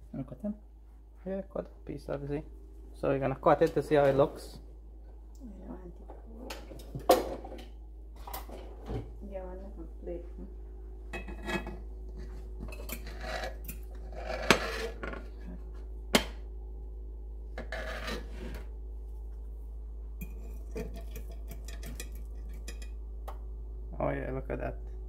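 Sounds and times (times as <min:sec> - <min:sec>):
knife scraping a pan: 0:12.6 - 0:15.3, 0:17.6 - 0:18.7, 0:20.2 - 0:22.9.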